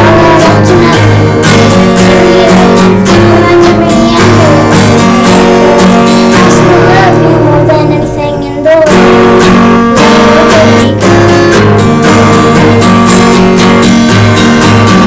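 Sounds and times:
acoustic guitar strumming: 0.0s - 15.0s.

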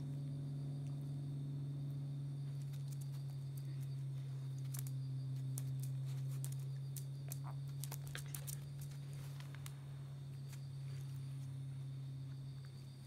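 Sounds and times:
steady low hum: 0.0s - 13.0s
dog paws ticking and pattering: 2.5s - 9.8s.

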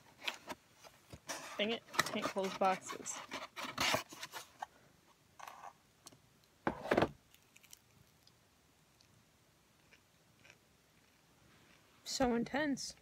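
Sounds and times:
cardboard box scraping and rustling: 1.2s - 4.6s.

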